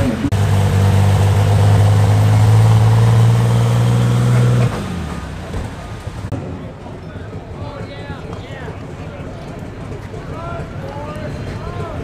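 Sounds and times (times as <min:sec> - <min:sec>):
pulling tractor engine running: 0:00.0 - 0:12.0.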